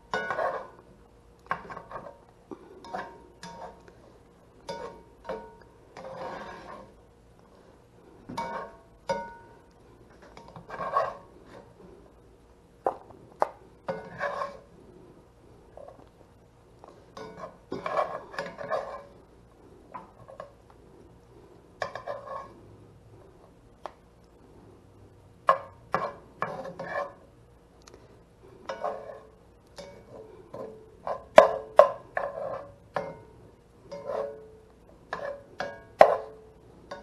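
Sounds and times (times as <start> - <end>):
plastic spoon scraping a skillet: 0.2 - 0.9, 1.5 - 7.6, 10.1 - 12.1, 12.9 - 15.1, 16.8 - 19.3, 21.3 - 23.4, 25.5 - 27.3, 28.6 - 33.1, 33.9 - 36.4.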